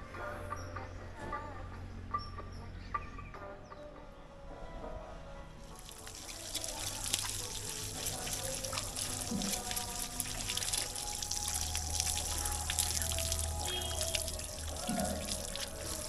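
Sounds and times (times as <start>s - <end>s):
background music: 0.0s - 16.0s
water splashing onto concrete: 5.7s - 16.0s.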